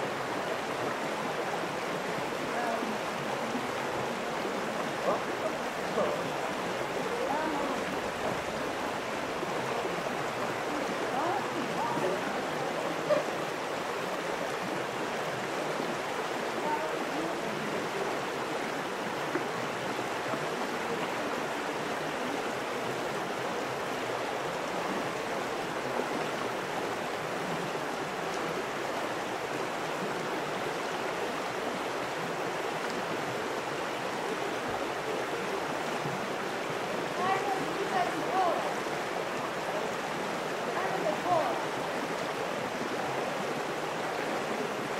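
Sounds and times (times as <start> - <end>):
stream rushing: 0.0 - 44.9.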